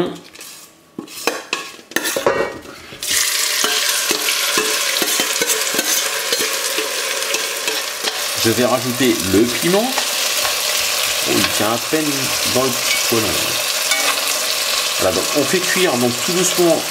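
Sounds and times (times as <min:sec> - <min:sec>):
metal spoon scraping steel bowl: 0:00.3 - 0:02.3, 0:03.6 - 0:08.3, 0:13.8 - 0:14.7
onions sizzling in hot oil: 0:03.0 - 0:16.9.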